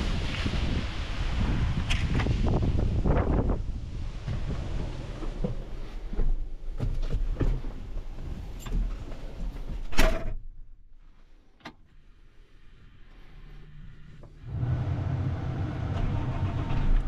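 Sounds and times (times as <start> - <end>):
wind noise: 0.0 - 9.1.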